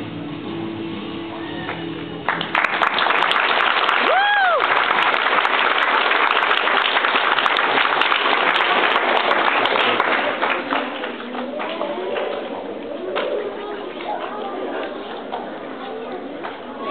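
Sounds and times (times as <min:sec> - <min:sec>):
audience clapping: 0:01.6 - 0:15.5
person whooping: 0:04.0 - 0:04.8.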